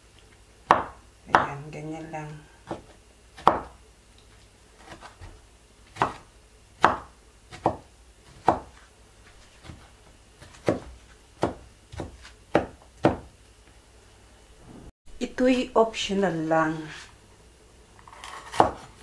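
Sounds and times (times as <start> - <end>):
knife chopping on wooden board: 0.7 - 1.5, 2.7 - 3.8, 4.8 - 5.3, 6.0 - 8.8, 9.6 - 13.3, 18.3 - 18.9.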